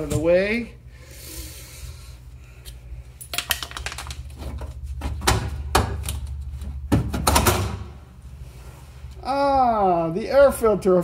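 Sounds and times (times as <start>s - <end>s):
steady low hum: 0.0s - 11.0s
metal parts clattering and knocking: 3.3s - 4.2s.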